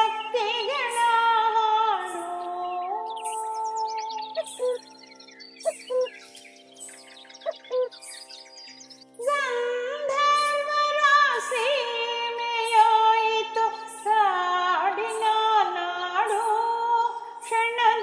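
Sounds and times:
woman singing: 0:00.0 - 0:04.8, 0:09.2 - 0:18.0.

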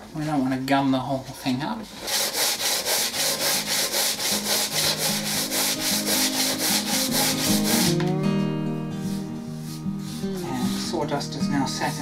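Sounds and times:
sandpaper sanding wood: 0:01.9 - 0:08.0, 0:09.1 - 0:11.0.

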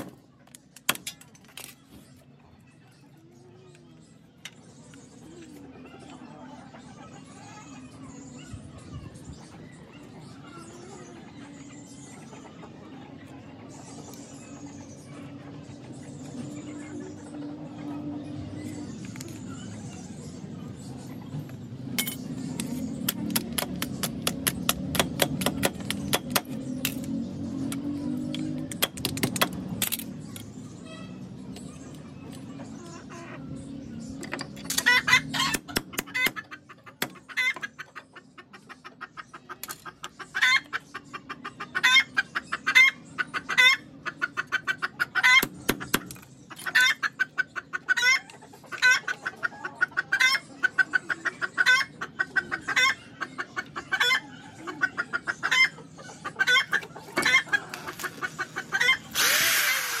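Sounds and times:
hens clucking: 0:09.4 - 0:18.9, 0:31.7 - 1:00.0
power drill: 0:59.1 - 1:00.0.

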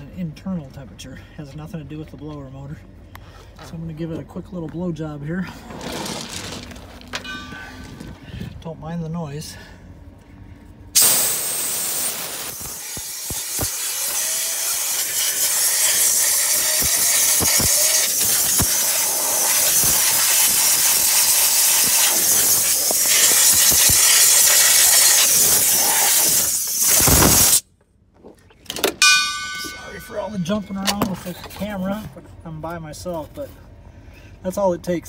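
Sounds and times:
air jet hissing: 0:11.0 - 0:27.6.

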